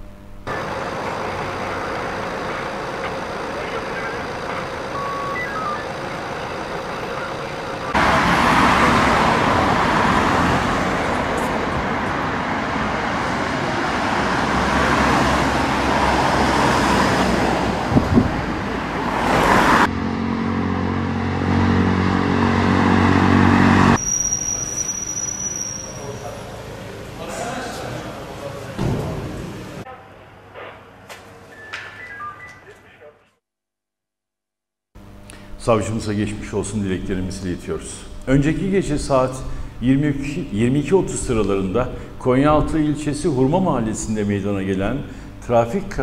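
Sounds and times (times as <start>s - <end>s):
vehicle engine running: 0.0s - 11.8s
vehicles passing: 0.5s - 24.9s, 25.6s - 30.7s
thin high steady tone: 24.0s - 26.6s.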